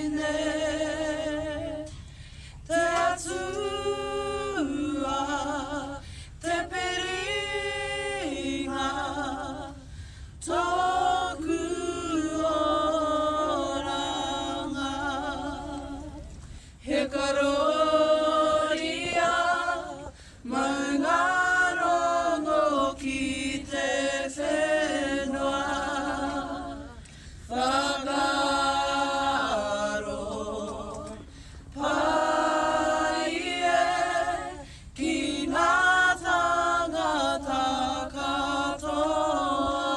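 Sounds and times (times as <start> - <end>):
group singing unaccompanied: 0.0 - 1.9, 2.6 - 39.9.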